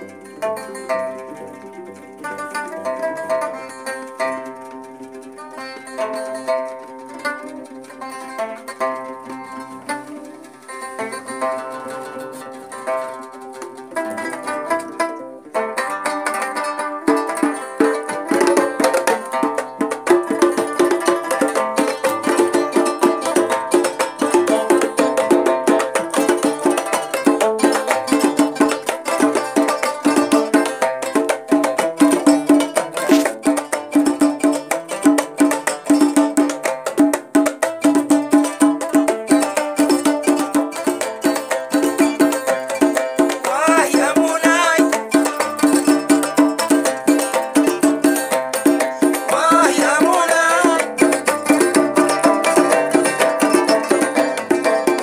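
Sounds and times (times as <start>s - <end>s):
plucked lute music: 0.0s - 55.0s.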